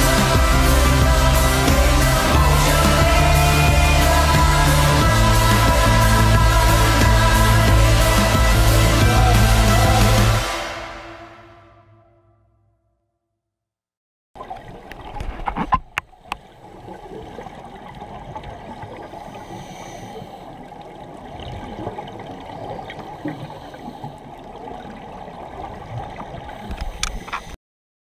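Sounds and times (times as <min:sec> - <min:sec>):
underwater bubbles gurgling: 0:14.4 - 0:27.3.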